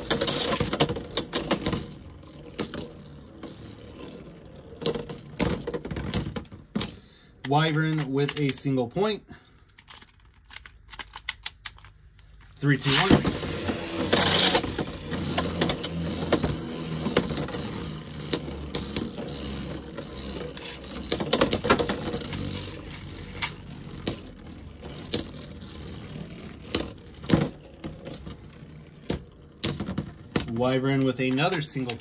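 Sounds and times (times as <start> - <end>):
spinning tops whirring: 0.0 - 6.0, 12.6 - 32.0.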